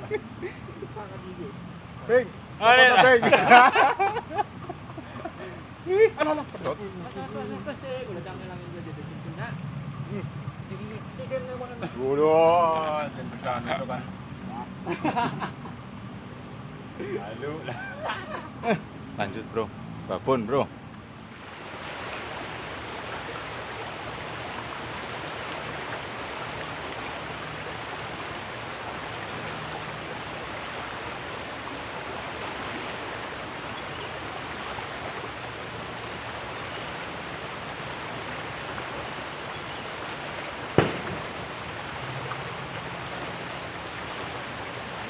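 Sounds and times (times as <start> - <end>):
river water rushing: 0.0 - 0.4, 21.0 - 45.0.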